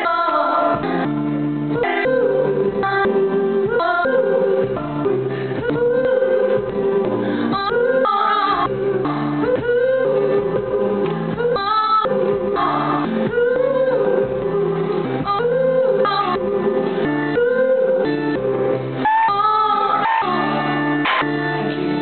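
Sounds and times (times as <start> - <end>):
woman singing: 0.0 - 22.0
acoustic guitar strumming: 16.2 - 22.0.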